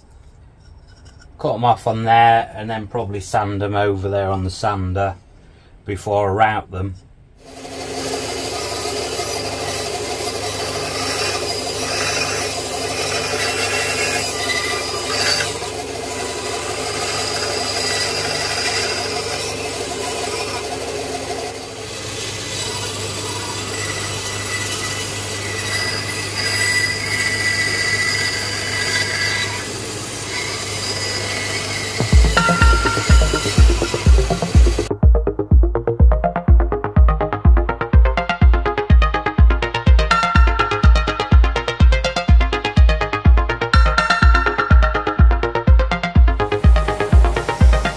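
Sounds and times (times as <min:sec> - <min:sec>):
blade cutting wood: 0:07.4 - 0:34.9, 0:46.4 - 0:47.9
bandsaw humming: 0:07.4 - 0:35.0, 0:37.6 - 0:47.9
music with a beat: 0:32.0 - 0:47.9.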